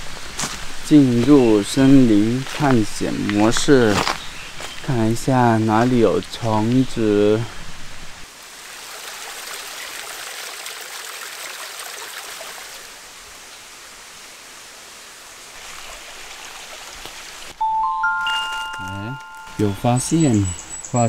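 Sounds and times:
rushing hiss of forest ambience: 0:00.0 - 0:17.6
chime ringing: 0:17.6 - 0:20.8.

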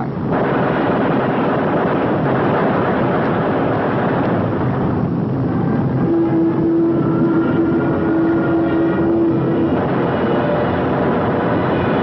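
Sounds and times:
aircraft engines droning: 0:00.0 - 0:12.0.

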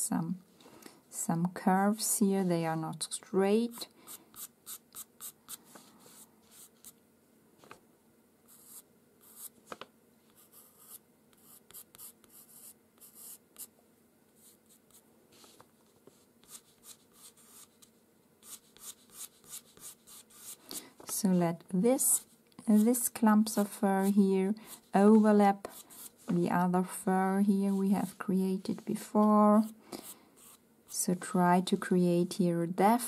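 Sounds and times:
pencil scratching on paper: 0:03.7 - 0:07.0, 0:08.5 - 0:09.5, 0:10.3 - 0:13.7, 0:16.4 - 0:17.8, 0:18.4 - 0:20.6, 0:22.0 - 0:26.5, 0:29.6 - 0:31.0.

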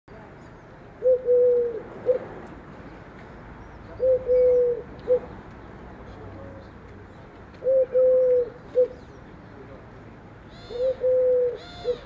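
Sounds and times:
dove cooing: 0:01.0 - 0:02.3, 0:04.0 - 0:05.3, 0:07.6 - 0:09.1, 0:10.5 - 0:12.0.

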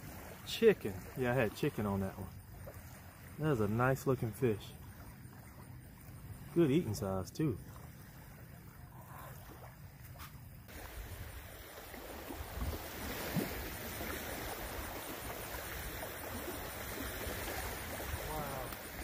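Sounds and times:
small waves lapping on shore: 0:00.0 - 0:19.0
wind on microphone: 0:10.7 - 0:19.0.

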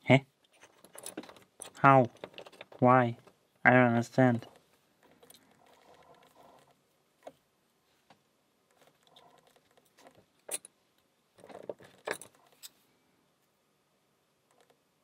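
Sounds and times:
soft rustle: 0:04.4 - 0:10.3.

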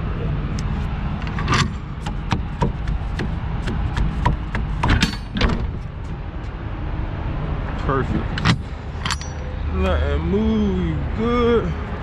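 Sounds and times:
steady low rumble: 0:00.0 - 0:12.0
door latches clanking: 0:04.8 - 0:05.8.

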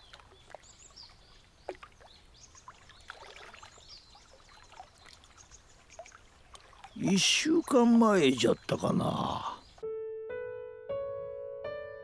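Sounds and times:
small splash: 0:00.0 - 0:07.5
water lapping against boat: 0:00.0 - 0:08.0
water drips: 0:00.0 - 0:08.9.

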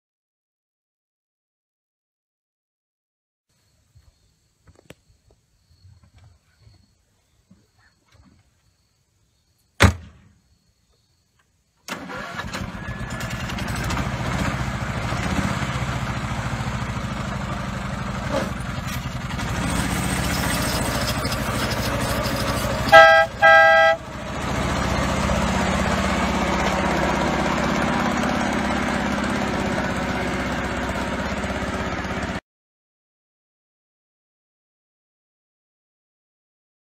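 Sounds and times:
truck engine running: 0:12.0 - 0:32.4
horn honks: 0:21.9 - 0:24.2.

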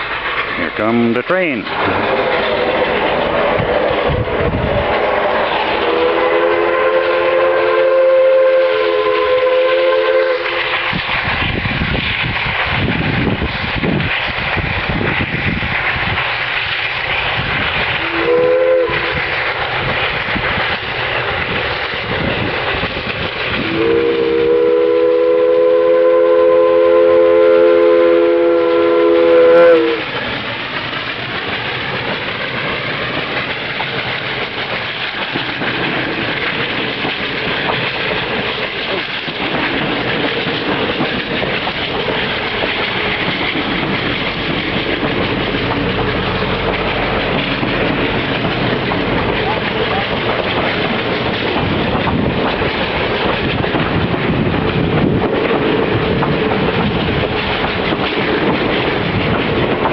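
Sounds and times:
train rushing and wheel clatter: 0:00.0 - 0:59.9
steam locomotive whistle blasts: 0:05.8 - 0:10.9, 0:18.0 - 0:19.2, 0:23.6 - 0:30.1.

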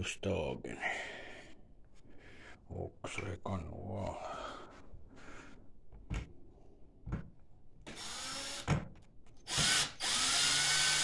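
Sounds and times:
cordless drill motor whine: 0:07.9 - 0:08.7, 0:09.5 - 0:11.0.

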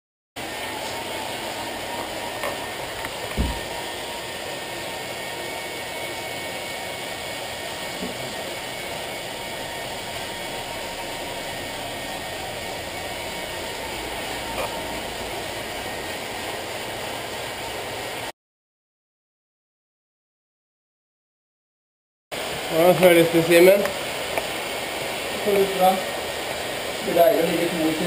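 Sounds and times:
bicycle trainers whirring: 0:00.4 - 0:18.0
low thump: 0:03.4 - 0:03.7.

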